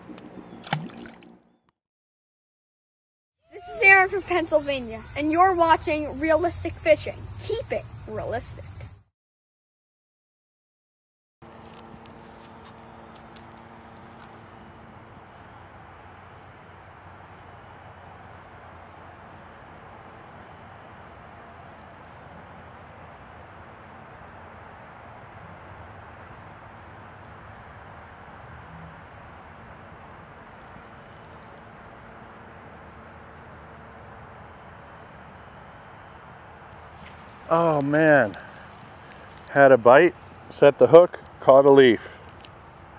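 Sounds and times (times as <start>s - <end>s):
crickets chirping: 3.5s - 9.1s, 11.4s - 42.9s
outdoor hiss: 33.6s - 42.6s.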